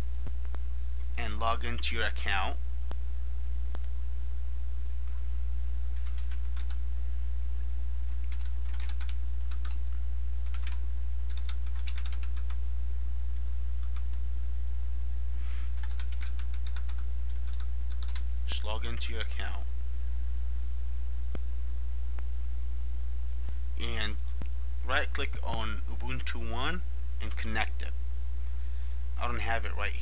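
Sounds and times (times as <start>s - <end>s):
steady low hum: 0.0s - 30.0s
computer keyboard typing: 6.0s - 6.8s, 8.2s - 9.8s, 10.4s - 12.6s, 13.8s - 14.2s, 15.7s - 18.2s.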